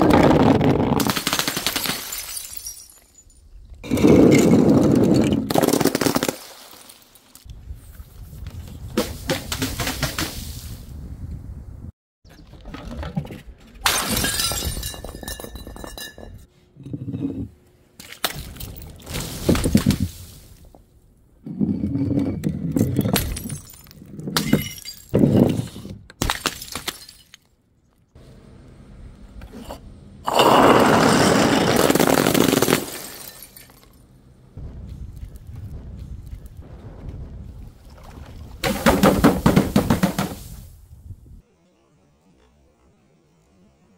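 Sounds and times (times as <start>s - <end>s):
glass bottles smashing: 1.6s - 7.2s, 13.8s - 16.5s, 22.9s - 25.6s, 26.2s - 27.5s, 30.3s - 34.0s
glass shards ringing: 2.0s - 3.6s.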